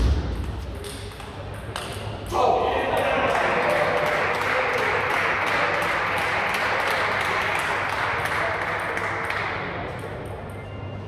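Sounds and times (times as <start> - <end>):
crowd applauding: 2.8 - 9.8.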